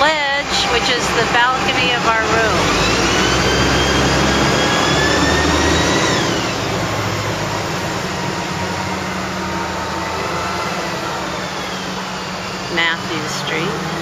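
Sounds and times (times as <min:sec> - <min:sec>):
motor whine: 0:00.0 - 0:14.0
steady low hum: 0:00.0 - 0:14.0.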